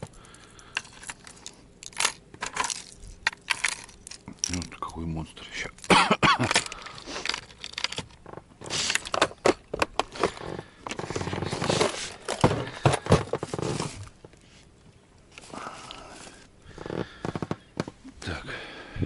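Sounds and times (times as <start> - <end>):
plastic lures clicking and clattering: 0.0 - 4.9, 5.6 - 10.2
box scraping and knocking: 9.2 - 14.2.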